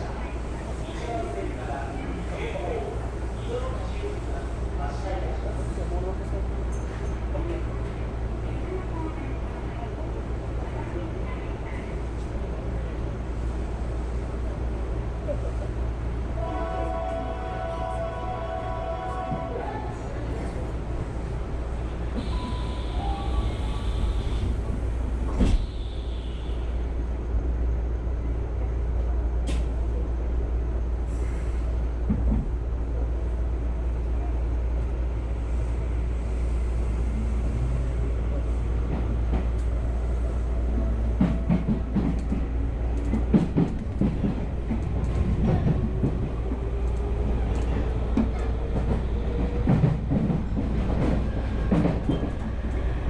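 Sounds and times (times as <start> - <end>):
train rumble from inside: 0.0 - 53.0.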